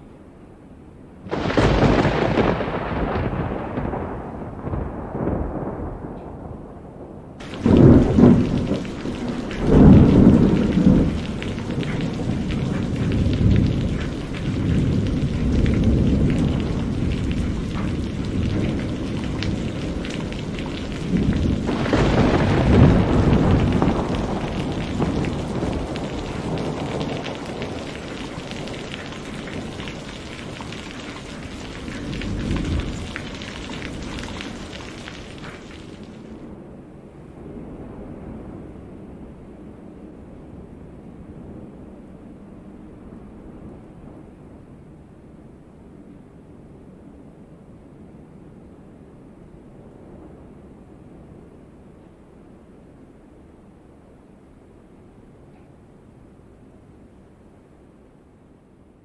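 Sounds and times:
rain hiss: 0:01.2 - 0:06.4, 0:07.0 - 0:58.2
thunder rolling: 0:01.3 - 0:42.0.

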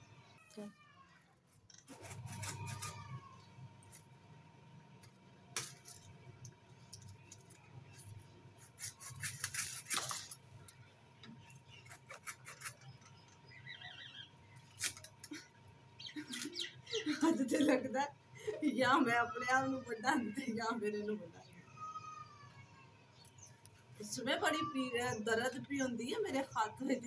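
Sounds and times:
knife scraping: 0:01.7 - 0:03.2, 0:07.1 - 0:10.4, 0:11.6 - 0:13.2, 0:14.6 - 0:15.4.

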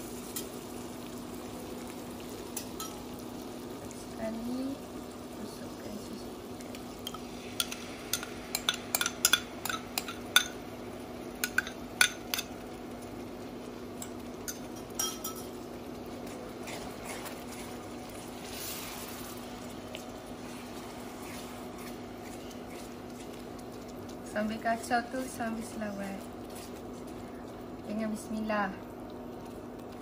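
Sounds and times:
mixture bubbling in frying pan: 0:00.0 - 0:30.0
spatula stirring: 0:06.7 - 0:10.6, 0:16.1 - 0:28.3.

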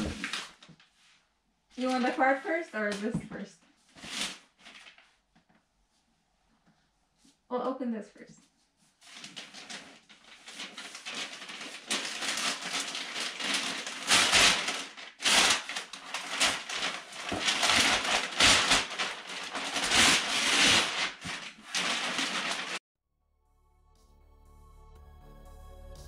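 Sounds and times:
packing paper crinkling: 0:00.0 - 0:00.9, 0:04.0 - 0:05.2, 0:09.0 - 0:22.8.

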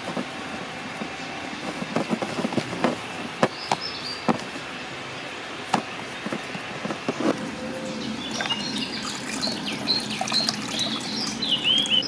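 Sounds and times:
hand mixing damp groundbait: 0:06.0 - 0:12.0.

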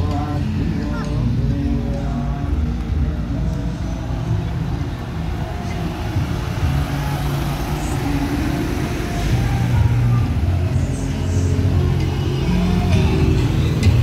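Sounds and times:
vehicle engines running: 0:00.0 - 0:14.0.

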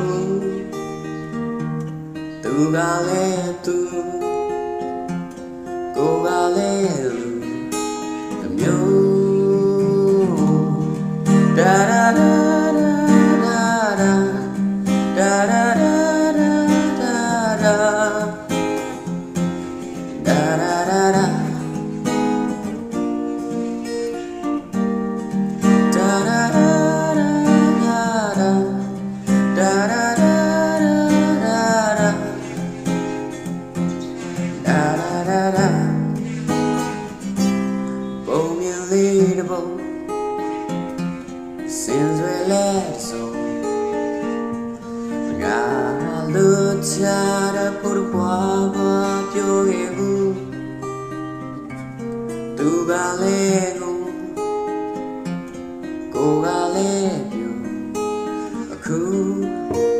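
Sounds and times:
acoustic guitar playing chords: 0:00.0 - 0:59.9.

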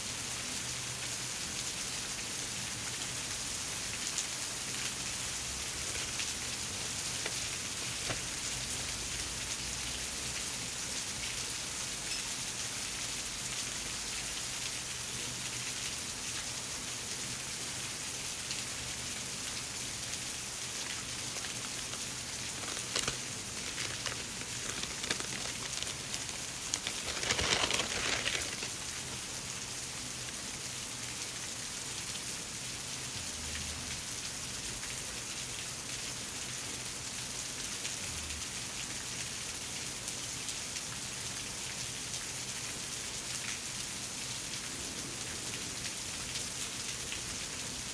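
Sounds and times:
steady rain-like hiss: 0:00.0 - 0:47.9
packaging rustling and crinkling: 0:05.8 - 0:08.6, 0:21.3 - 0:29.2.

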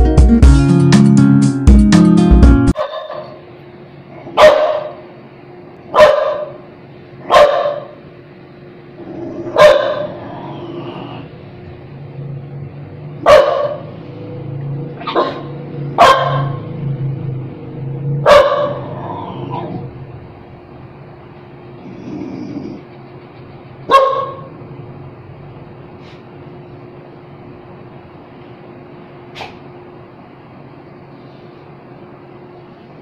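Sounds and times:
young dog barking: 0:02.8 - 0:03.4, 0:04.3 - 0:05.1, 0:05.9 - 0:06.6, 0:07.2 - 0:08.0, 0:09.5 - 0:10.2, 0:13.2 - 0:13.9, 0:15.0 - 0:16.6, 0:18.2 - 0:19.8, 0:23.9 - 0:24.5.

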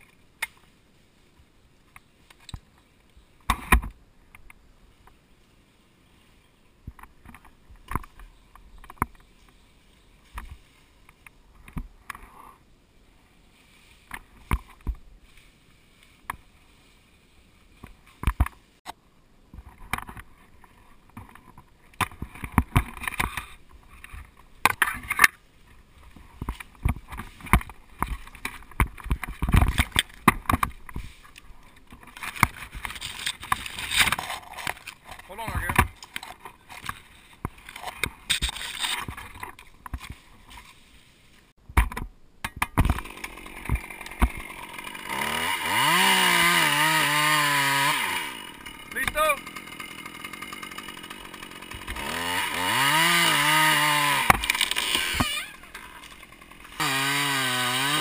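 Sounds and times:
leaves and twigs rustling: 0:00.0 - 0:41.6.

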